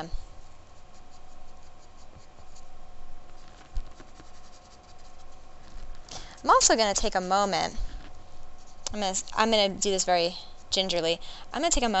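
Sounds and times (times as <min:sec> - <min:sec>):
pastel scratching on paper: 0:00.3 - 0:06.7, 0:08.1 - 0:08.8.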